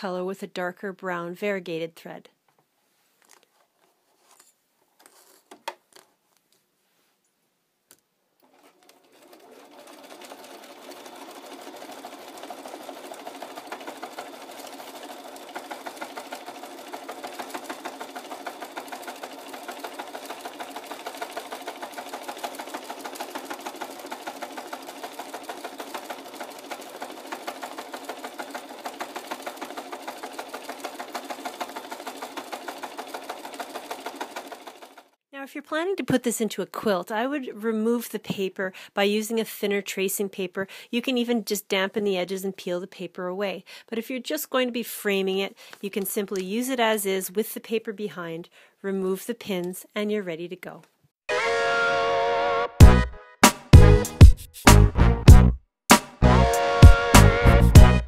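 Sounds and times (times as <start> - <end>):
sewing machine stitching: 8.4 - 35.2.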